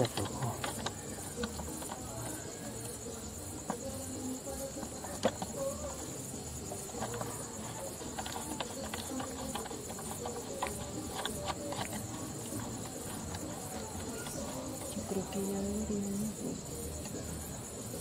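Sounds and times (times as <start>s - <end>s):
small clicks and knocks: 0.0s - 3.0s
crickets chirping: 0.0s - 18.0s.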